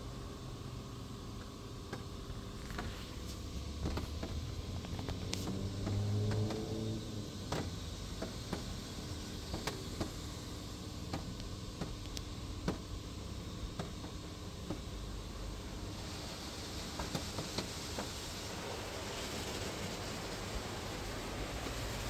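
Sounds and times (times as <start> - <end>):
water spray hissing on car: 2.5 - 11.3, 15.4 - 22.0.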